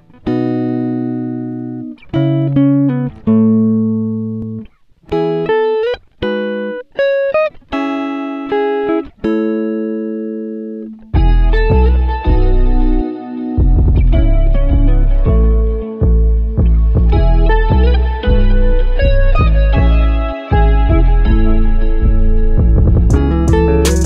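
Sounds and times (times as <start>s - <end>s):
plucked guitar music: 0.0s - 24.0s
deep bass: 11.2s - 13.0s, 13.6s - 24.0s.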